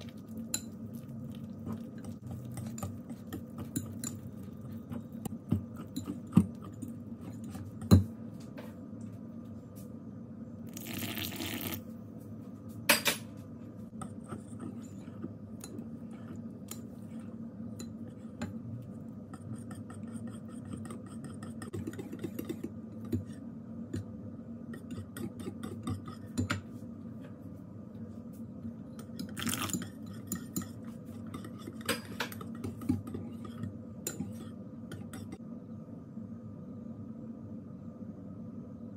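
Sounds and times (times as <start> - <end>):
whisk scraping a ceramic bowl: 0.0 - 7.9, 14.0 - 18.5, 19.2 - 23.4, 29.2 - 35.4
whisk beating batter: 0.0 - 8.0, 19.3 - 23.4
whisk clinking on bowl: 1.6 - 5.1, 29.1 - 35.4.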